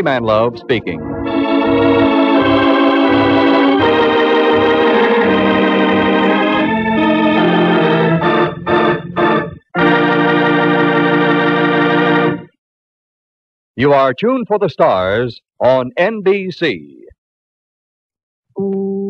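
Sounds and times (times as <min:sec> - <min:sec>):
organ chords: 0:00.0 - 0:12.6.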